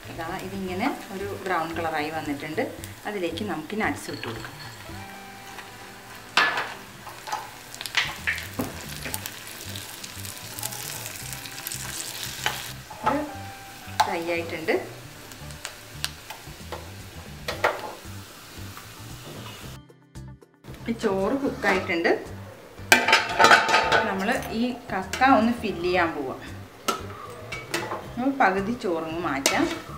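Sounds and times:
nuts and onion sizzling in pan: 0.0s - 19.8s, 20.8s - 29.9s
steel spoon scraping a pan: 26.9s - 28.0s.

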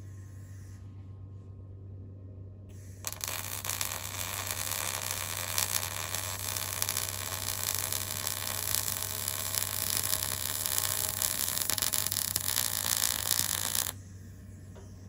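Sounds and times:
constant low hum: 0.0s - 15.0s
welding arc crackling hiss: 3.0s - 14.0s.

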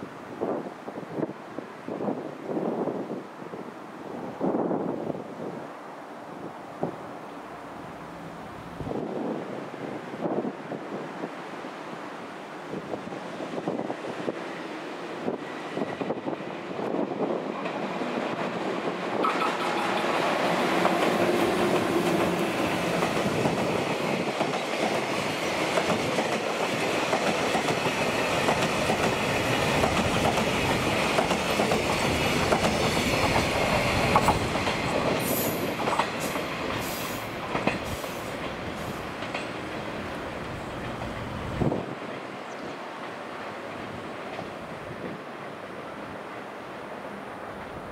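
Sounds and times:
train wheels clicking on rail joints: 15.2s - 44.8s.

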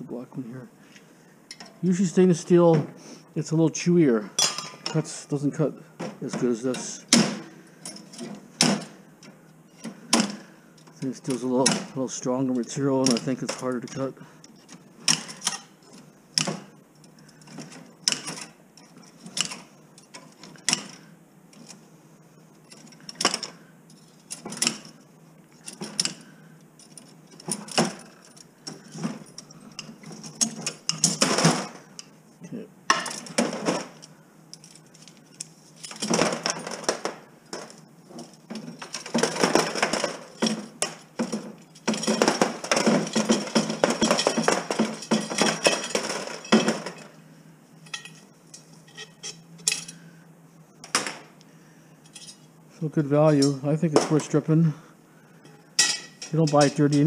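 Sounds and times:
metal spokes rattling and clinking: 6.3s - 14.1s, 32.9s - 47.2s, 55.6s - 57.0s.

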